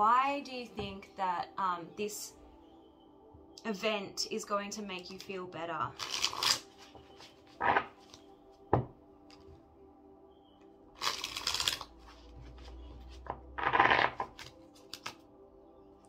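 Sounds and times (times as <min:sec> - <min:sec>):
faint background music: 0:00.0 - 0:16.0
cards rustling and sliding: 0:06.0 - 0:08.2, 0:11.0 - 0:15.2.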